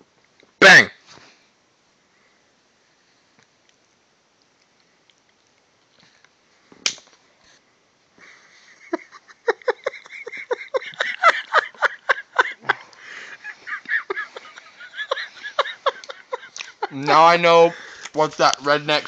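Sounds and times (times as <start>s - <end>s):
chewing crunchy cookie: 3.6s - 6.4s
smacking mouth sounds: 16.0s - 16.8s.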